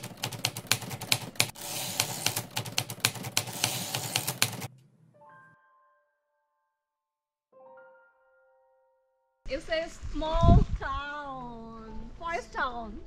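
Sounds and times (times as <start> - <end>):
typewriter key clacks: 0.0 - 4.7.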